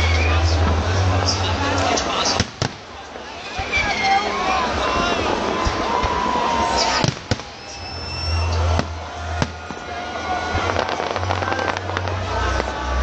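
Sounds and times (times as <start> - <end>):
fireworks crackling: 0.1 - 4.2, 6.1 - 13.0
fireworks bangs: 2.3 - 4.1, 5.6 - 13.0.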